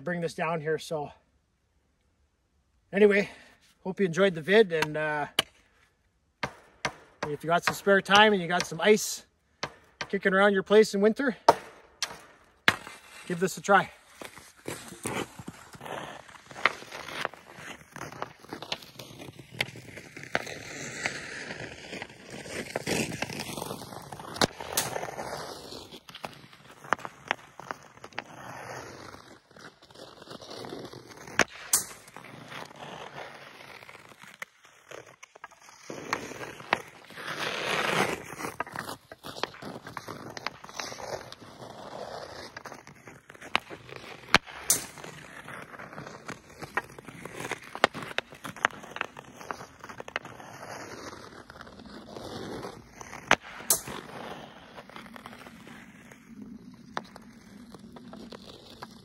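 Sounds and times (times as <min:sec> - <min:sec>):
ice skate blades scraping: 0:03.0 - 0:59.0
hockey stick clacking puck: 0:04.5 - 0:05.6, 0:06.4 - 0:10.5, 0:11.4 - 0:55.7
hockey stick clacks: 0:06.4 - 0:10.4, 0:11.5 - 0:13.3, 0:16.3 - 0:25.3, 0:42.4 - 0:51.2.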